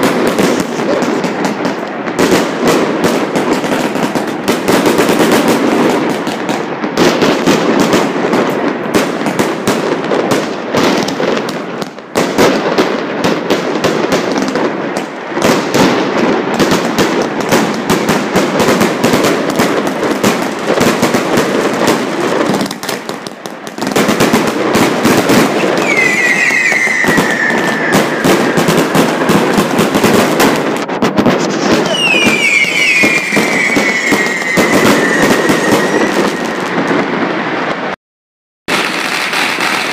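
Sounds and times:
firecrackers crackling: 0.0 - 38.0, 38.7 - 39.9
falling firework whistle: 25.5 - 29.0, 31.4 - 37.3.

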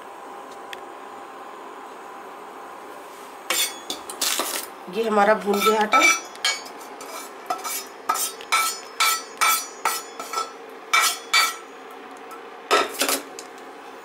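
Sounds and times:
spatula knocking on a metal pan: 7.5 - 11.6.

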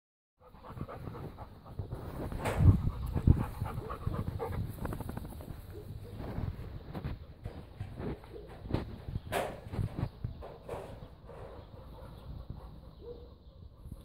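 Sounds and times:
dog panting: 0.4 - 2.1, 2.7 - 4.8
rustle and thump: 1.8 - 3.3, 4.7 - 11.6.

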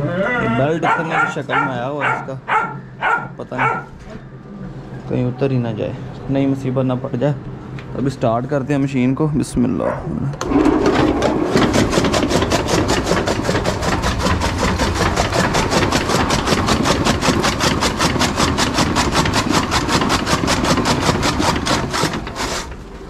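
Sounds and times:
electric motor machine clattering: 10.4 - 23.0.

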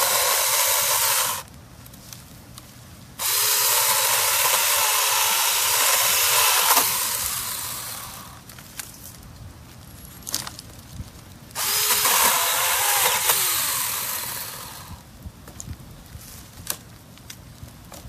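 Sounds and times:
chainsaw cutting branches: 0.0 - 1.5, 3.2 - 8.4, 11.6 - 15.0.

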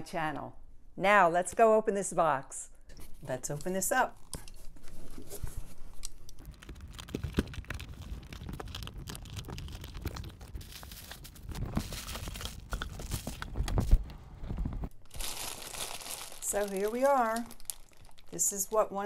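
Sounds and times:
plastic bags rustling: 4.2 - 18.8
cardboard box being opened: 6.4 - 14.9.

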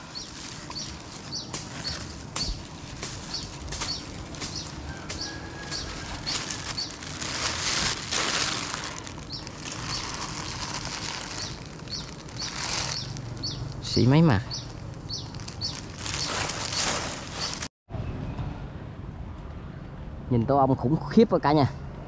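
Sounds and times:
bird chirping: 0.0 - 7.4, 8.8 - 17.6
plastic bag rustling: 0.0 - 17.7.

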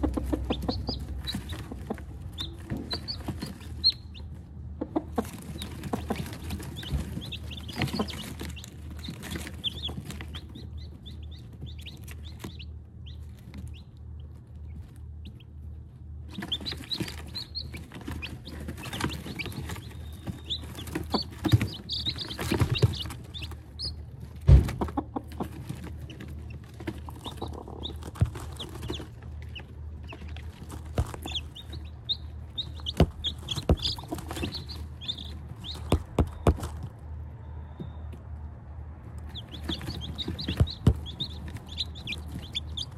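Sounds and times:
hen clucking: 0.0 - 15.5, 16.2 - 36.8, 39.2 - 42.9
chicks peeping: 0.0 - 42.9
sharp knocks: 24.5 - 25.0, 32.8 - 36.9.

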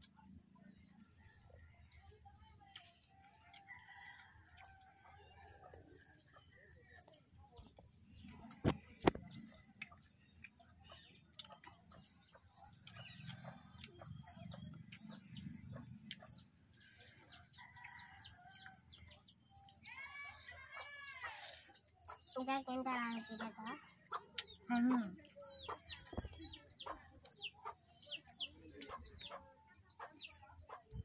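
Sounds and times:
birds chirping: 5.5 - 31.0
chickens clucking: 20.5 - 31.0.

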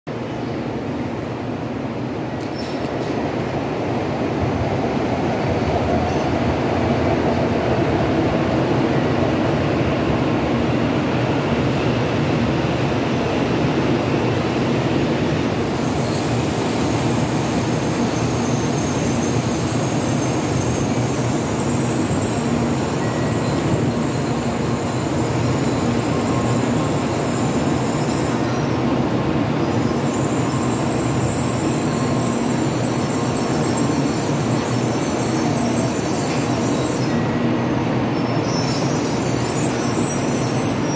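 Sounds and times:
high brake squeal: 15.7 - 28.8, 29.6 - 40.9.

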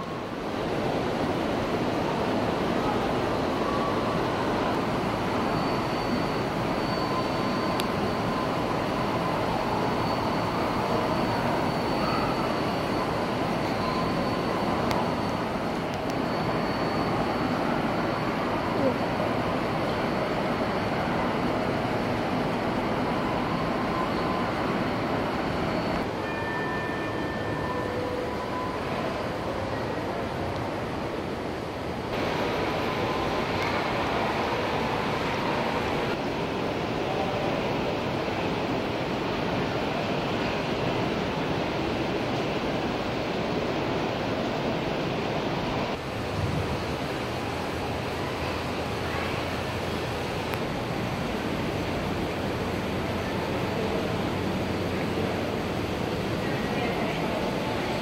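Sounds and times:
faint steady tones: 0.0 - 58.0
hall background noise: 0.0 - 58.0
model train rolling on track: 0.0 - 58.0.

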